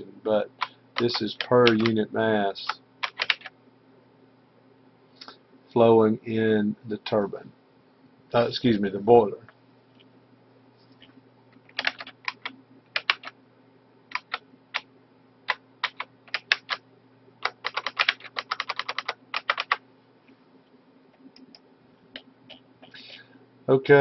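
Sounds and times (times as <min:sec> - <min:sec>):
low steady hum: 0:00.0 - 0:24.0
typing on computer keyboard: 0:00.6 - 0:02.0, 0:03.0 - 0:03.5, 0:11.7 - 0:13.4, 0:14.1 - 0:14.9, 0:15.5 - 0:16.8, 0:17.4 - 0:19.8.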